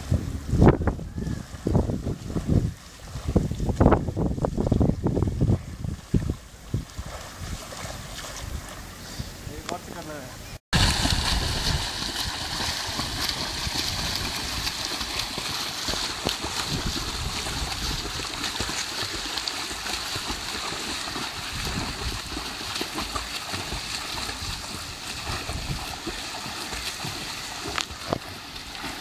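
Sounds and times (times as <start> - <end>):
swimmers splashing water: 6.7 - 29.0.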